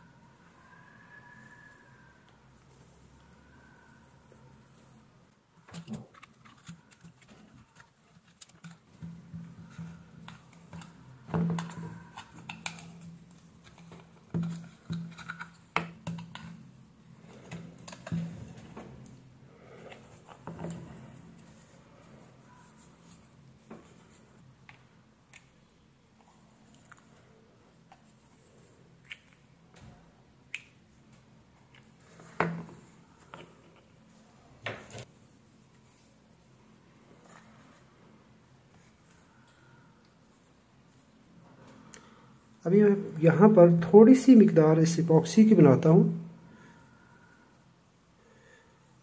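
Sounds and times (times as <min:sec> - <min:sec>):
plastic parts clicking and knocking: 0:05.6 - 0:16.5.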